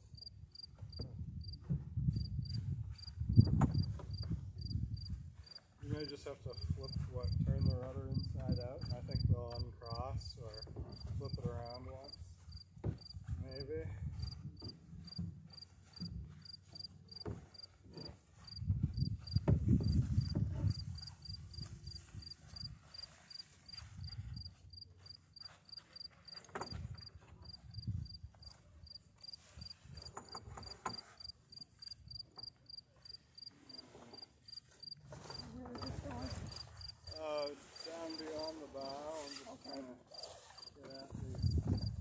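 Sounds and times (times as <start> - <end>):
cricket chirping: 0.1 - 1.6, 2.2 - 5.6, 18.5 - 23.8, 27.4 - 33.8, 36.4 - 37.2
wind rumble on microphone: 0.9 - 12.4, 13.1 - 15.0, 18.6 - 22.5, 27.6 - 28.3, 41.1 - 42.0.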